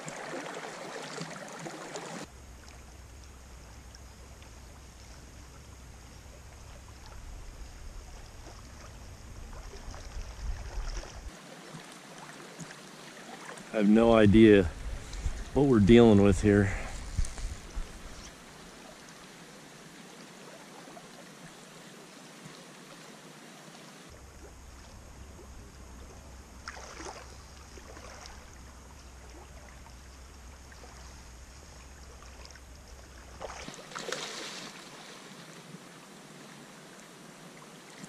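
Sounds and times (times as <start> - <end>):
river current running: 0.0 - 38.0
splashing in shallows: 8.4 - 13.8, 26.6 - 28.6, 32.1 - 35.6.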